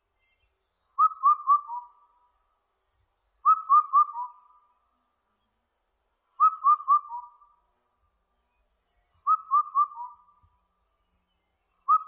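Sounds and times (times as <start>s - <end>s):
cuckoo whistled song: 1.0s - 2.3s, 3.4s - 4.7s, 6.4s - 7.5s, 9.1s - 10.7s, 11.8s - 12.0s.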